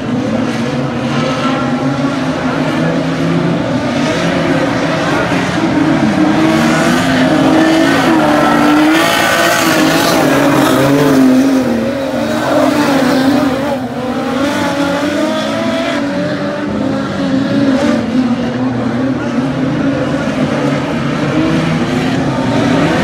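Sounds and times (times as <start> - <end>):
race car engines revving: 0.0 - 23.0.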